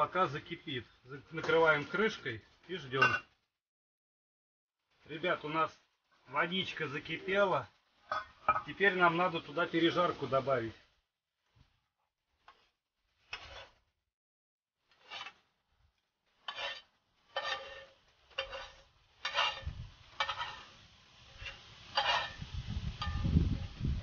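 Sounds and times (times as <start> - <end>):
utensil scraping metal pan: 12.4 - 13.9, 14.8 - 15.6, 16.2 - 23.3.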